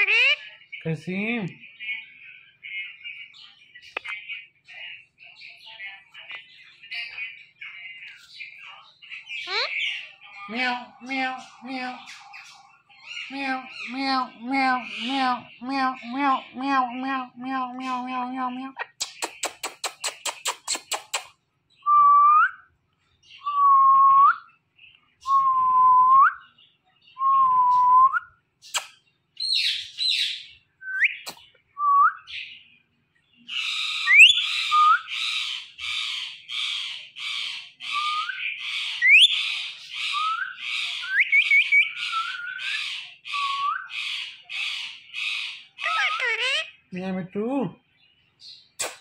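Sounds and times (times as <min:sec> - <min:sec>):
parakeet raspy calls: 0:09.4 - 0:18.1, 0:33.5 - 0:46.9
kissing smacks: 0:19.0 - 0:21.4, 0:28.7 - 0:29.0, 0:48.8 - 0:49.0.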